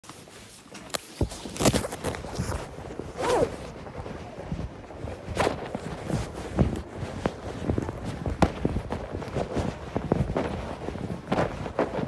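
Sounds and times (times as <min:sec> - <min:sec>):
footsteps: 0:00.0 - 0:12.0.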